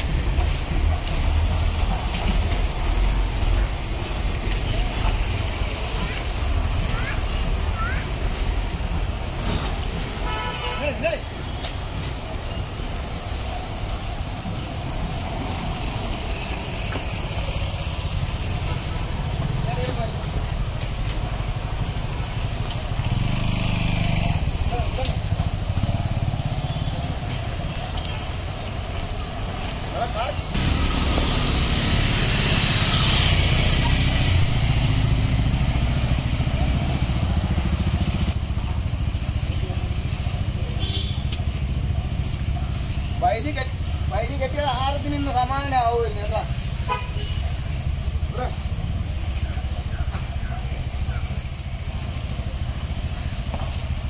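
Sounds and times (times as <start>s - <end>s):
motorcycle passing: 0.0s - 54.0s
motor scooter passing: 11.8s - 46.8s.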